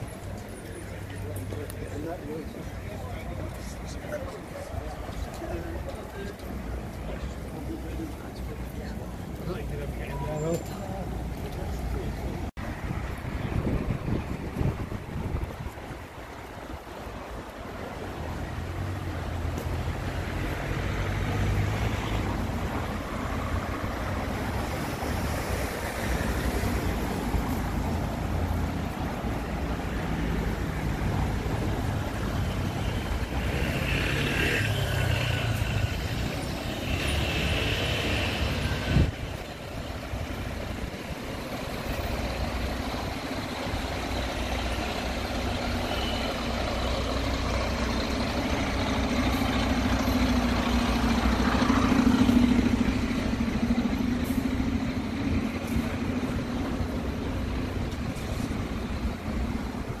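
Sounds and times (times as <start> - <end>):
road traffic rumble: 0.0 - 60.0.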